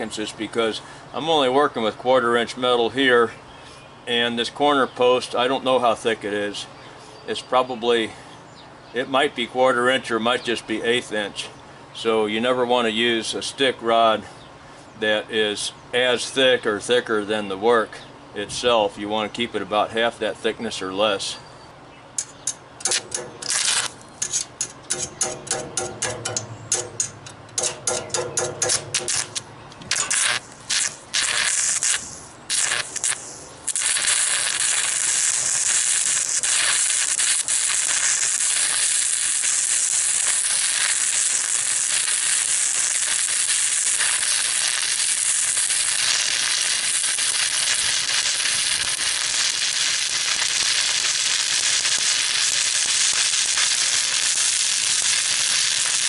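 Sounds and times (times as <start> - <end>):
welding arc crackling: 22.2 - 56.0.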